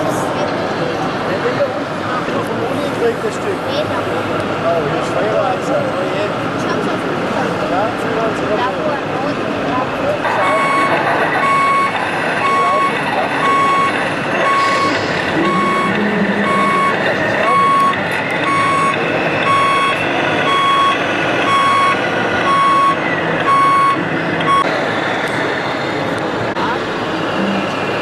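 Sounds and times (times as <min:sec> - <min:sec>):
reversing beeper: 0:10.3 - 0:24.7.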